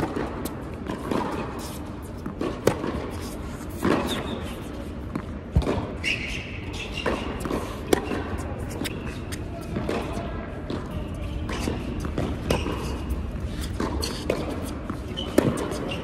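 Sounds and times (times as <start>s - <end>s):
racquets striking tennis ball: 0.0s - 6.2s, 6.9s - 16.0s
high squeal of shoes: 3.2s - 4.9s, 5.8s - 9.6s, 11.4s - 16.0s
ball bouncing on court: 5.0s - 6.0s, 9.6s - 16.0s.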